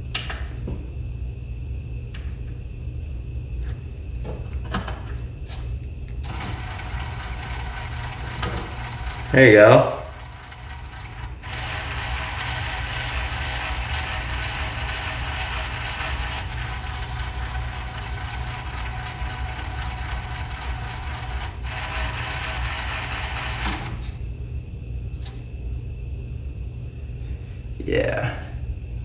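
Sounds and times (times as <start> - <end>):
disc player motor and gears: 6.2 - 24.2.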